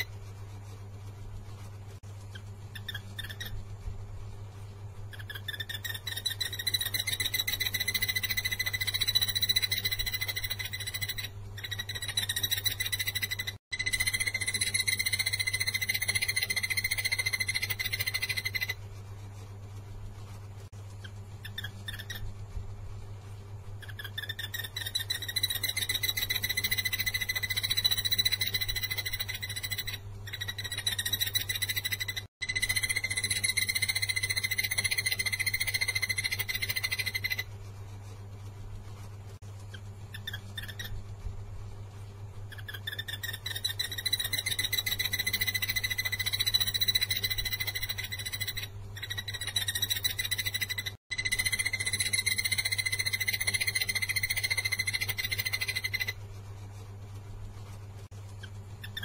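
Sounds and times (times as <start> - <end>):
barbet singing rapid trills: 5.1 - 18.8, 23.8 - 37.4, 42.5 - 56.2.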